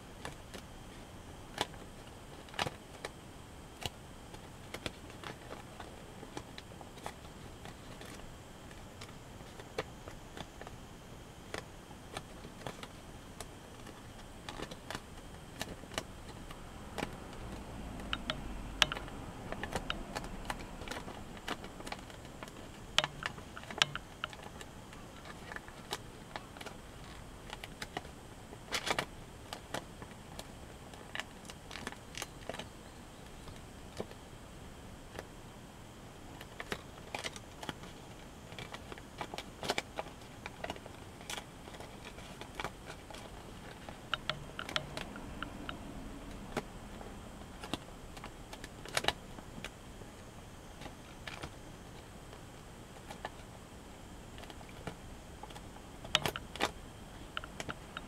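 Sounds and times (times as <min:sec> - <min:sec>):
paper crinkling and rustling: 0:36.4 - 0:44.0.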